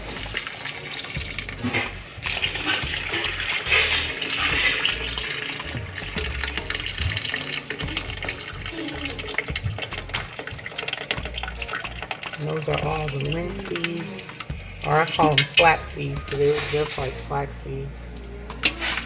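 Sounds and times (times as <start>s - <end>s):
liquid pouring and splashing: 0.0s - 17.5s, 18.1s - 19.0s.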